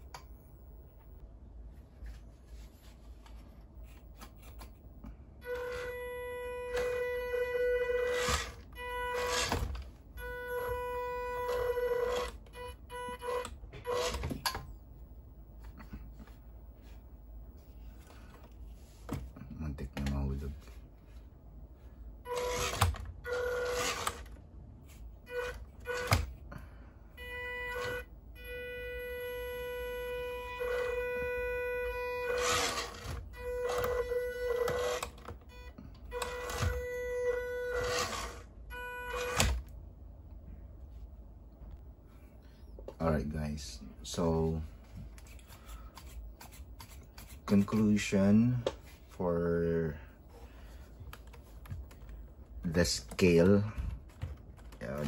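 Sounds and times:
electric motor whining: 0:05.4 - 0:14.4, 0:27.2 - 0:35.3, 0:36.1 - 0:39.6.

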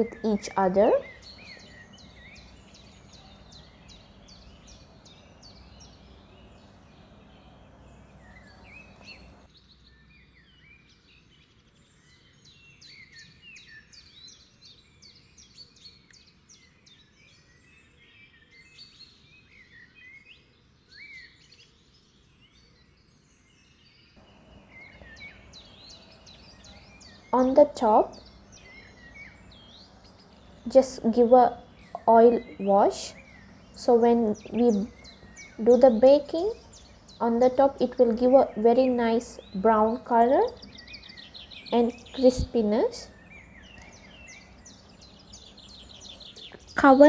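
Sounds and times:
low steady background hiss: 0:00.0 - 0:47.0
small birds chirping: 0:00.0 - 0:47.0.

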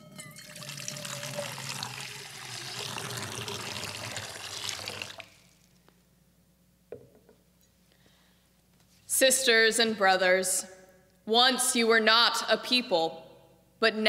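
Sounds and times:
water pouring into a bowl: 0:00.0 - 0:05.7.

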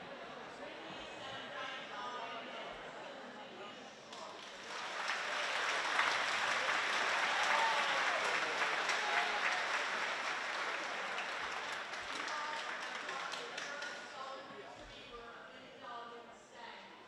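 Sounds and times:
audience applauding: 0:04.2 - 0:14.2.

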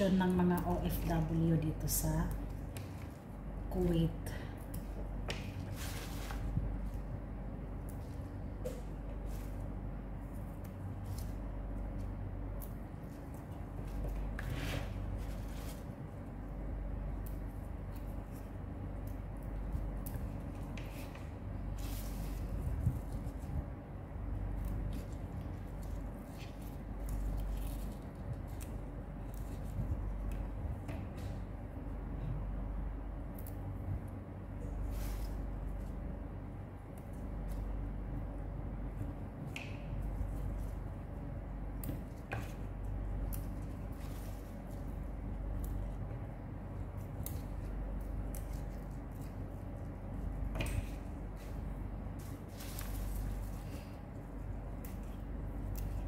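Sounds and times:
leaves rustling by hand: 0:00.0 - 0:31.9, 0:33.3 - 0:56.0
steady low hum: 0:00.0 - 0:56.0
stems snapping: 0:07.6 - 0:14.4, 0:33.2 - 0:33.9, 0:39.3 - 0:46.1, 0:46.7 - 0:49.8, 0:54.7 - 0:56.0.

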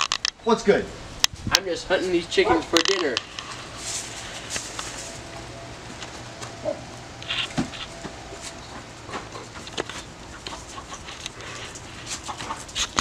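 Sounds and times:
hens clucking: 0:01.9 - 0:13.0.

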